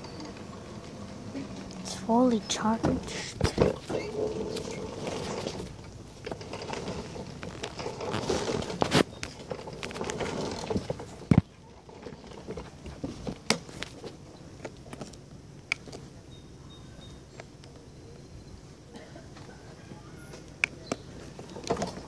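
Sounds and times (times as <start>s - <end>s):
plastic toy car rattling: 3.1s - 13.1s.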